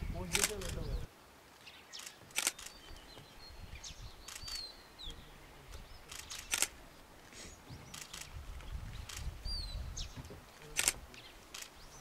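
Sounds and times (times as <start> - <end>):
faint bird chirps: 0.0 - 6.7, 7.4 - 12.0
camera shutter clicks: 0.3 - 0.8, 2.0 - 2.8, 6.1 - 6.7, 10.8 - 11.7.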